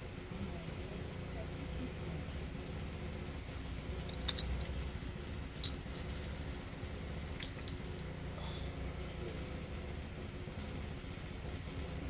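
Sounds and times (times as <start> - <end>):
steady low hum: 0.0 - 12.0
light metallic clicks and clinks: 4.0 - 4.9, 5.6 - 6.4, 7.3 - 7.9.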